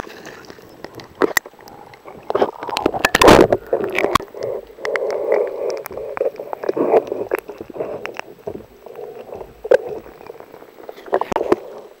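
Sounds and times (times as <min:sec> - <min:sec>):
muffled water sloshing and bubbling: 0:00.0 - 0:12.0
sharp clicks and knocks: 0:00.8 - 0:11.7.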